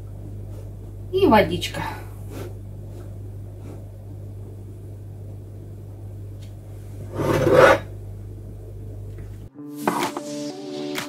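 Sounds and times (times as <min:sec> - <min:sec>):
low electrical hum: 0:00.0 - 0:09.5
spoon scraping plastic bowl: 0:07.1 - 0:07.9.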